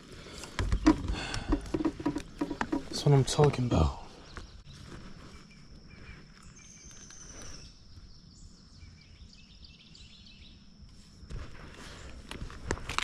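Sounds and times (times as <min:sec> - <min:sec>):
microphone handling knocks: 0:00.6 - 0:03.6
faint bird chirps: 0:03.6 - 0:10.7.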